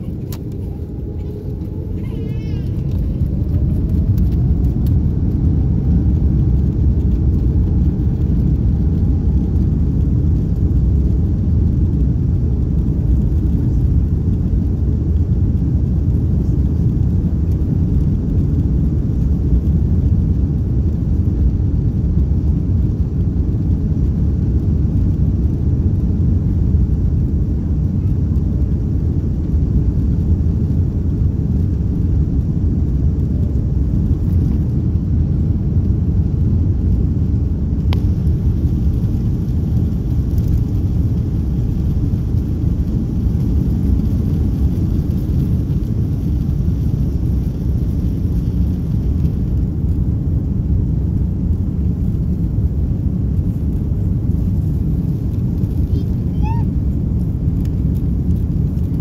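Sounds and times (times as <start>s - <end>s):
faint rising engine whine: 0.0s - 19.8s
aircraft cabin rumble: 0.0s - 59.0s.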